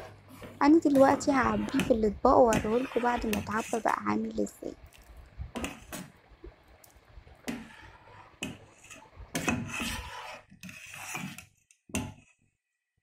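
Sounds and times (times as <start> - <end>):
ladle stirring thick rice pudding: 0.0 - 4.2, 4.9 - 12.4
metal ladle scraping a pot: 0.0 - 4.2, 5.5 - 6.1, 7.4 - 12.3.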